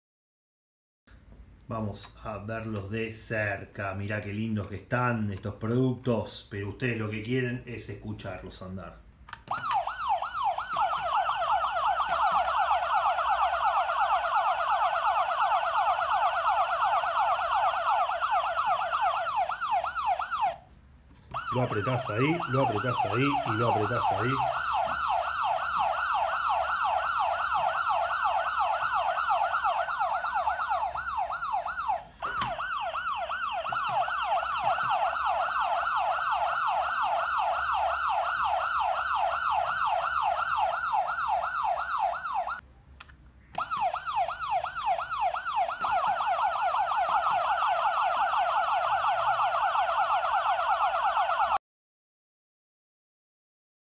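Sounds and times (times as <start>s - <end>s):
toy fire truck siren yelping: 9.4s - 20.6s, 21.3s - 42.6s, 43.5s - 51.6s.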